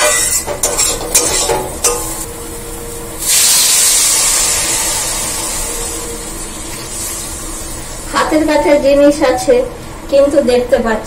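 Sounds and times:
metal spatula scraping pan: 0.0s - 2.2s
water hissing in hot pan: 2.7s - 9.2s.

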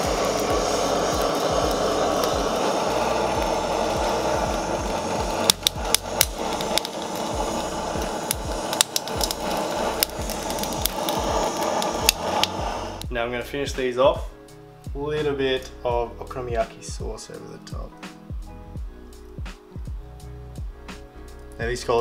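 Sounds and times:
blowtorch flame hissing: 0.0s - 13.1s.

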